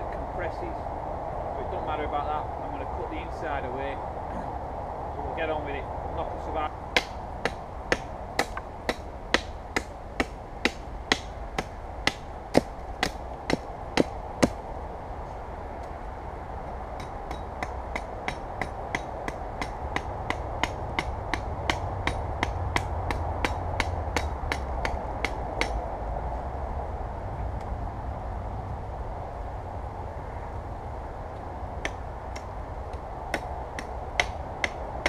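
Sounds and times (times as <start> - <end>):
hatchet chopping wood: 6.9 - 14.6, 17.0 - 25.8, 31.8 - 34.8.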